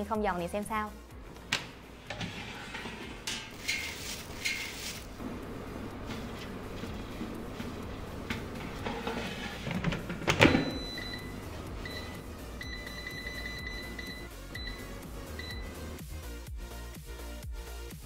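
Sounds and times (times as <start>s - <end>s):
control panel beeping: 10.5s - 15.8s.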